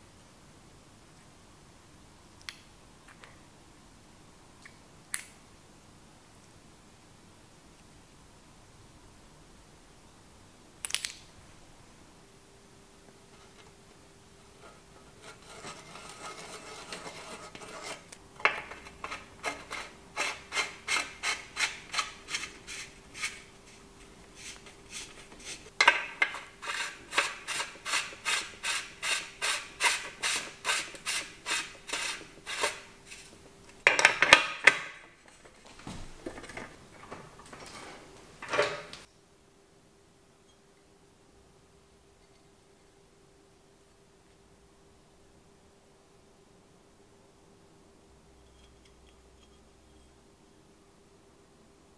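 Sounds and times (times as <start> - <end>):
metal threads rasping: 14.6 - 33.4.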